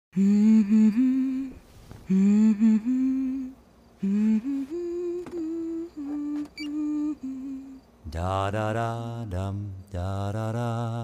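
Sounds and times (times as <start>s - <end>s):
woman humming softly: 0.2s - 7.8s.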